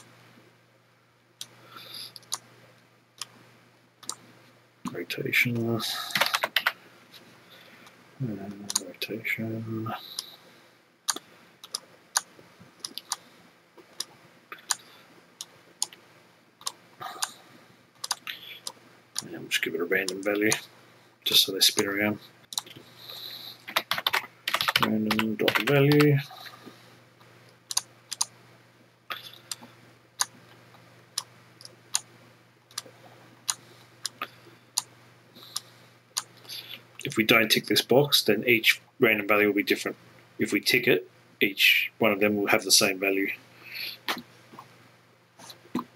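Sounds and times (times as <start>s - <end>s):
faint low hum: 0.0s - 45.9s
computer mouse clicking: 1.4s - 2.4s, 6.1s - 6.8s, 11.1s - 13.2s, 18.0s - 19.3s, 23.7s - 26.0s, 27.7s - 28.3s.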